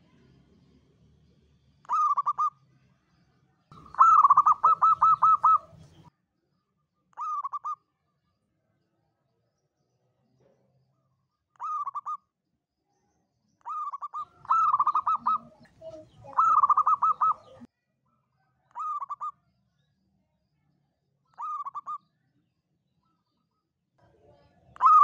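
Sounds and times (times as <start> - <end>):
dove cooing: 1.9 - 2.5, 3.7 - 6.0, 7.2 - 7.8, 11.6 - 12.2, 13.6 - 17.7, 18.8 - 19.3, 21.4 - 22.0, 24.8 - 25.0.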